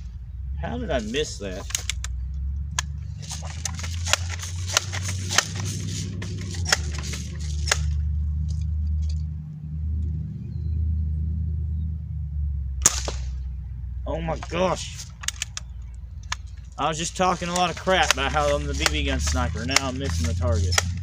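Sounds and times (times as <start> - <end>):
low rumble: 0.0 - 21.0
air rifle pump clicking: 1.6 - 8.0, 14.9 - 21.0.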